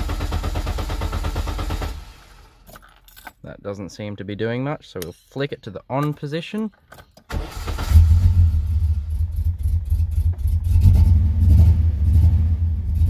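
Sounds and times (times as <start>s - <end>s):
car engine cranking and idling: 0.0s - 2.7s, 7.2s - 13.0s.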